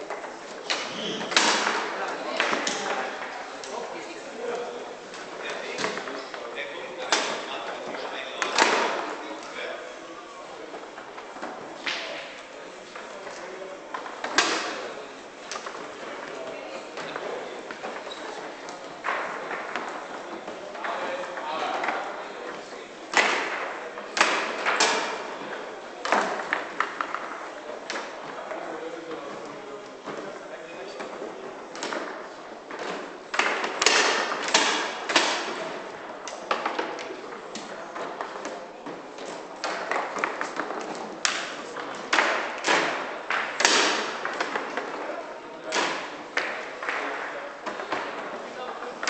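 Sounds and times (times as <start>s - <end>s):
foosball balls and rods knocking: 18.8s - 28.4s, 31.0s - 45.0s.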